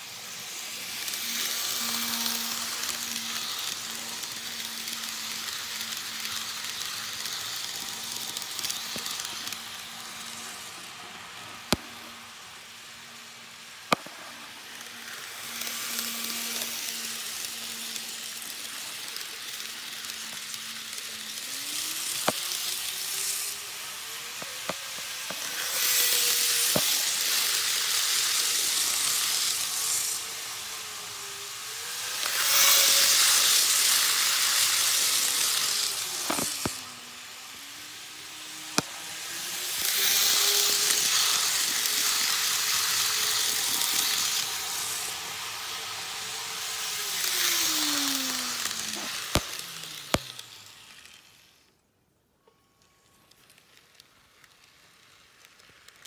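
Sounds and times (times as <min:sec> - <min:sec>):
model train wheels rushing: 0:00.0 - 0:56.0
motor whine: 0:13.5 - 0:51.2.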